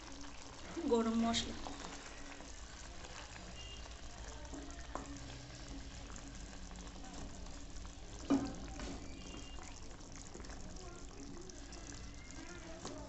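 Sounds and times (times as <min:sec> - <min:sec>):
curry simmering and bubbling: 0:00.0 - 0:13.0
wooden spatula stirring: 0:00.0 - 0:13.0.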